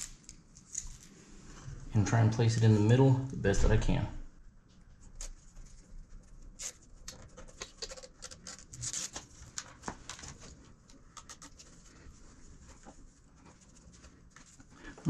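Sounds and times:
plastic liner peeling crinkle: 0.0 - 1.2, 5.0 - 14.7.

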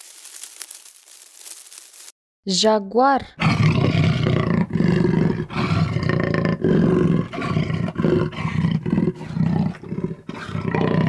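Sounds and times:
jaguar roaring: 3.4 - 11.0.

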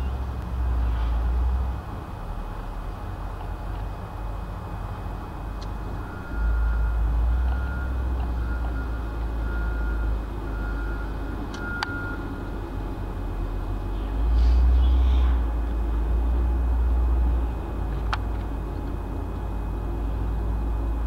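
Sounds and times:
low engine rumble: 0.0 - 21.0
reversing alarm beeping: 6.0 - 12.6.

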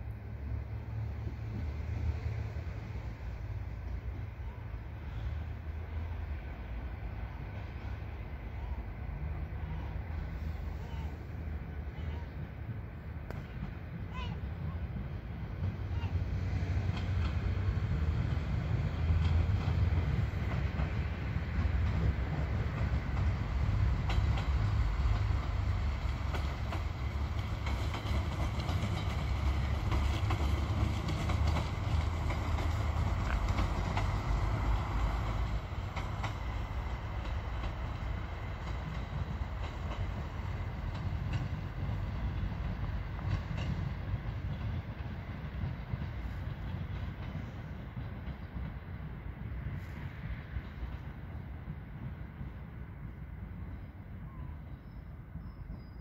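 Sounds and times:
train rumbling past: 0.0 - 56.0
train wheel clicks on rail joints: 16.7 - 48.8.

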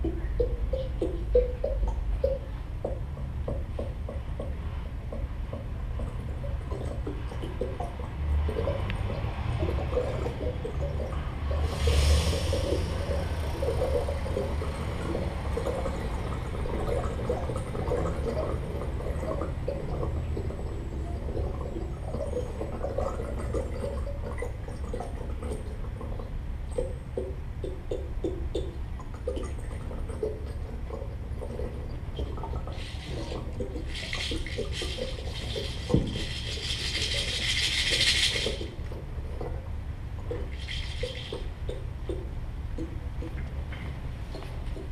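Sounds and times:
brief loud hiss: 11.7 - 12.9.

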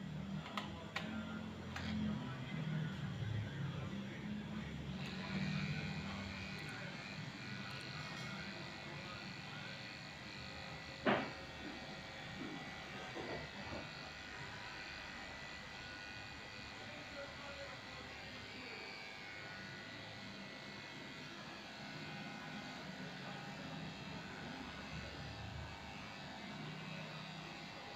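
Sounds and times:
electric clipper running: 0.0 - 27.9.

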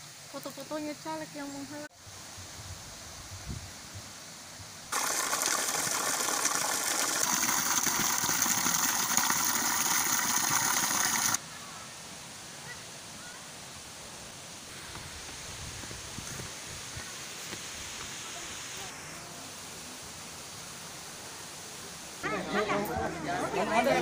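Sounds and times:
faint outdoor ambience: 0.0 - 24.0
rushing pouring water: 4.9 - 11.4.

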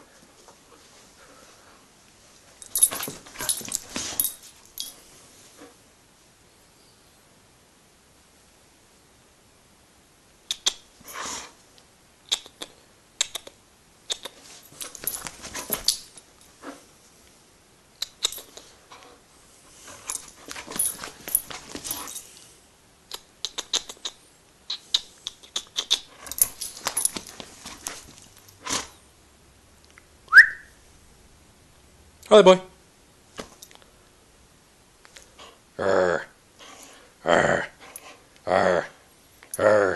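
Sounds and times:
collar tags jingling: 2.6 - 5.1, 14.4 - 16.8, 19.8 - 22.4, 25.9 - 28.9
dog tugging rope toy: 14.7 - 16.8, 19.9 - 22.2.

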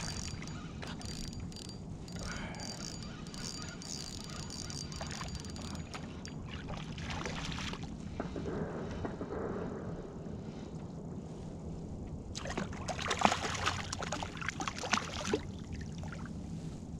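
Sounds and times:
low rumble: 5.8 - 14.4.

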